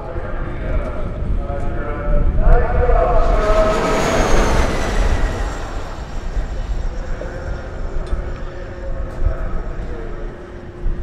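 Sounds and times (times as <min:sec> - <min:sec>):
electric motorcycle whine passing: 0:02.6 - 0:09.0.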